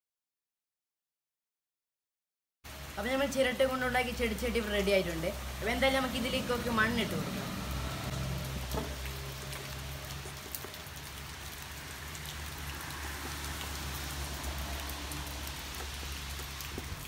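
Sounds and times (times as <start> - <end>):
steady rain: 2.7 - 17.0.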